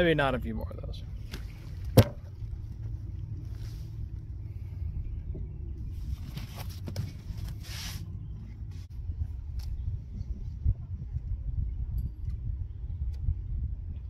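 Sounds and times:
wind rumble on microphone: 0.0 - 14.0
water lapping against canoe hull: 1.1 - 8.1.

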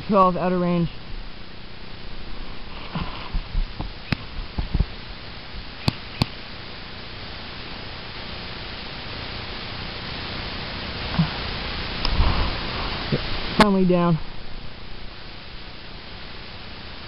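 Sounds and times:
steady hiss: 0.0 - 17.0
sharp cracks: 3.8 - 4.9, 5.8 - 6.4.

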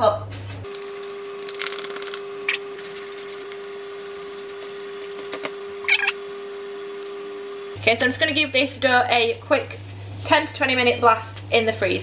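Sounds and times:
steady hum: 0.6 - 11.2
flour pouring: 0.7 - 5.5.

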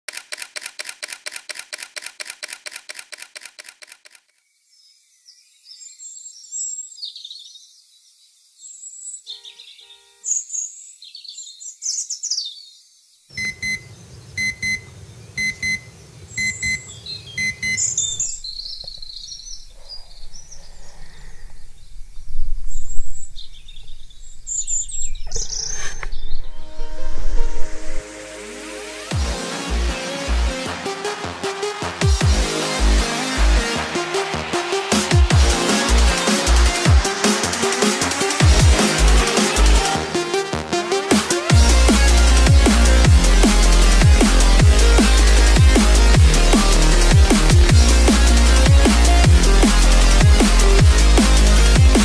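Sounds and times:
songbirds chirping: 4.4 - 26.7
alarm clock beeps: 13.4 - 13.8, 14.4 - 18.2.

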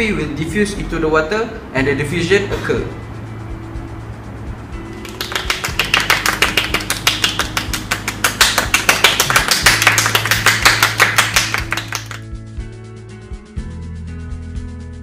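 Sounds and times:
background music: 0.0 - 15.0
people clapping hands: 4.9 - 12.3.

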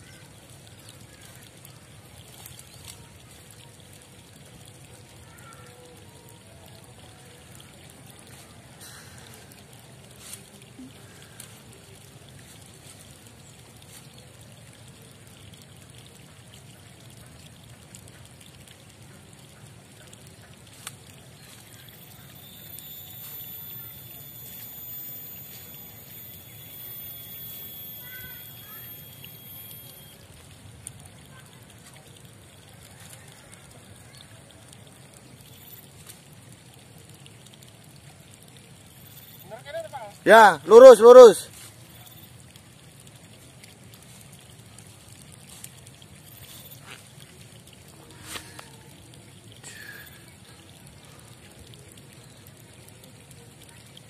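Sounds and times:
faint water trickling: 0.0 - 54.0
thin high whine: 22.1 - 30.3.

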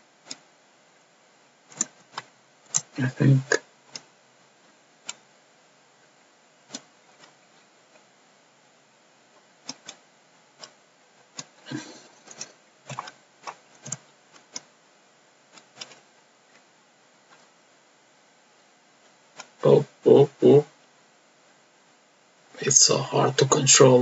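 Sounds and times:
computer mouse clicks: 0.2 - 0.5, 1.7 - 3.0, 3.9 - 4.1, 5.0 - 5.2, 6.7 - 7.4, 9.6 - 10.0, 11.4 - 14.7, 15.5 - 16.6
keyboard keys clicking: 11.4 - 14.7, 15.6 - 16.0.

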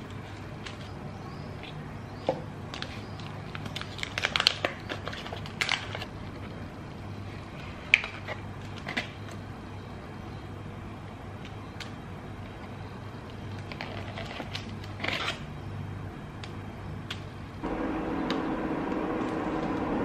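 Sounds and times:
foil wrapper crinkling: 2.7 - 6.7, 13.5 - 15.5.

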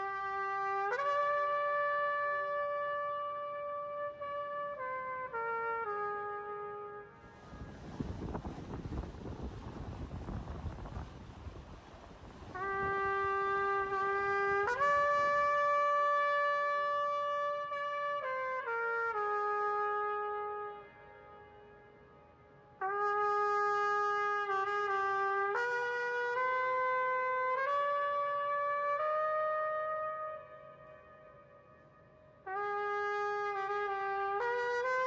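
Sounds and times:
solo trumpet melody: 0.0 - 22.2, 22.8 - 31.5, 32.4 - 35.0
wind noise: 7.1 - 21.4.

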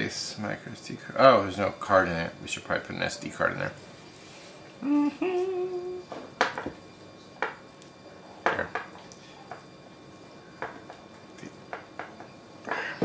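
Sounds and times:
man humming: 4.8 - 6.1.

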